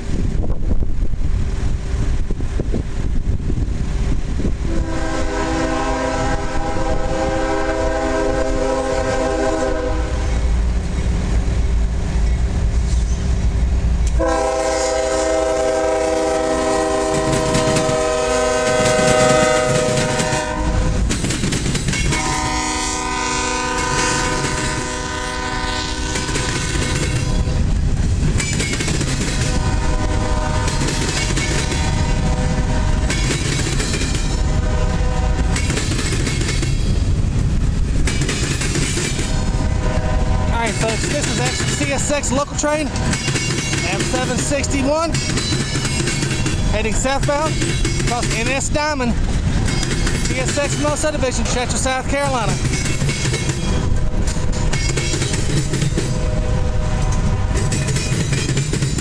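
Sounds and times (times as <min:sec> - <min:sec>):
deep locomotive engine rumble: 0:00.0 - 0:59.0
locomotive horn blasts: 0:04.7 - 0:10.3, 0:14.2 - 0:21.0, 0:22.1 - 0:27.6, 0:29.5 - 0:31.0, 0:31.7 - 0:33.2, 0:34.4 - 0:35.6, 0:39.2 - 0:41.5, 0:56.1 - 0:57.8
train wheels clattering: 0:05.7 - 0:34.6, 0:35.3 - 0:59.0.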